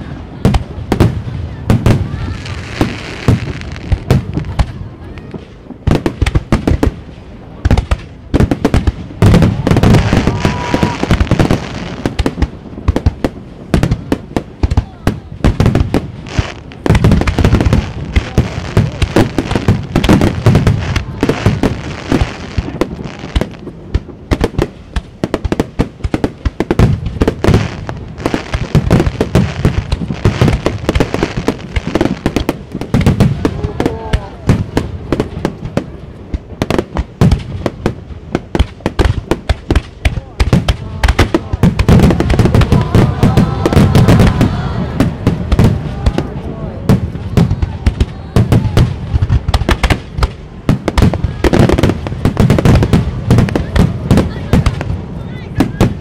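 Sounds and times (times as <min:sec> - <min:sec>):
fireworks crackling and popping: 0:00.0 - 0:56.0
firework shells booming: 0:05.4 - 0:56.0.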